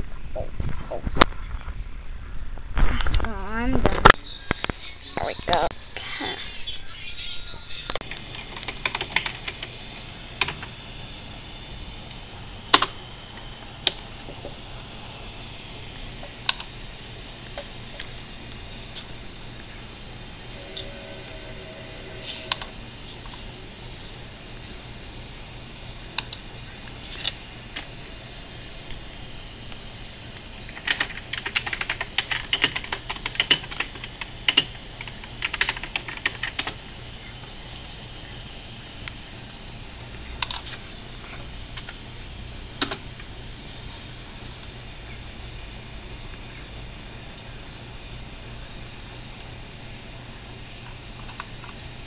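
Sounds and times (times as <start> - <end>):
typing on computer keyboard: 8.1 - 9.7, 30.7 - 36.8.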